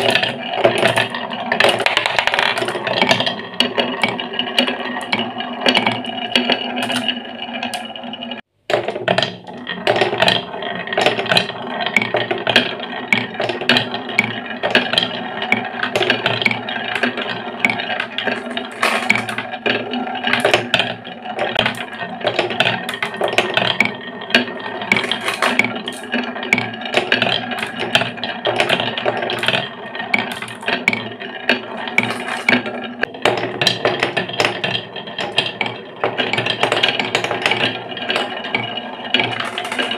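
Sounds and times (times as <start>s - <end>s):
glass marbles rolling on wooden tracks: 0.0s - 39.9s
marbles clicking together: 8.7s - 39.9s.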